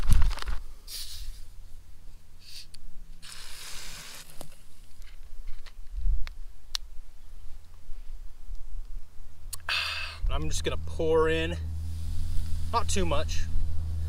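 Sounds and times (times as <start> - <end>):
soda bottle pressure hissing: 2.4 - 4.5.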